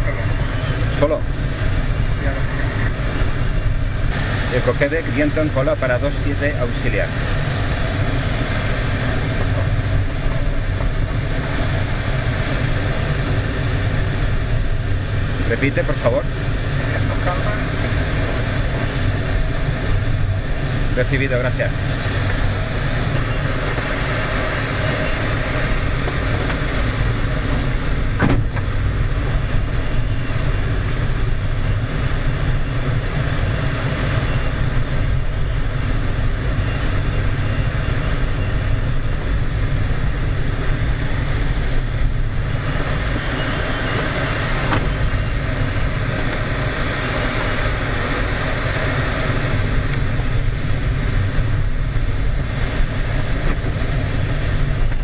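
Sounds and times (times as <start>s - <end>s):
airflow rushing over canopy: 0.0s - 55.0s.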